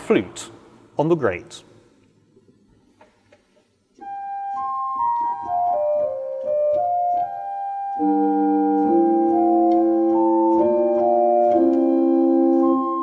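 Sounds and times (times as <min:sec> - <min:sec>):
pipe organ flute melody: 0:04.0 - 0:13.0.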